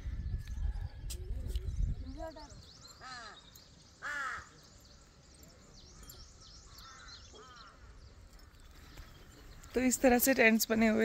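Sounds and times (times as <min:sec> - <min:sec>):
crow cawing: 0:03.0 - 0:03.4, 0:04.0 - 0:04.5, 0:06.7 - 0:08.0.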